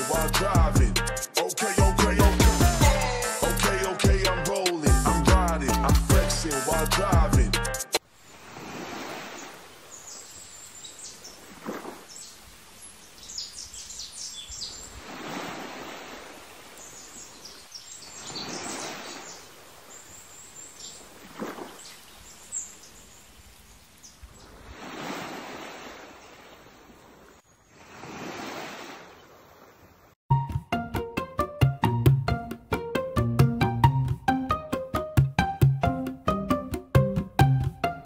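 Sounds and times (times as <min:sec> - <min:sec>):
waves washing in: 0:08.3 - 0:10.0, 0:14.9 - 0:20.2, 0:20.9 - 0:22.0, 0:24.4 - 0:30.1
small birds chirping: 0:09.8 - 0:15.0, 0:16.6 - 0:24.6.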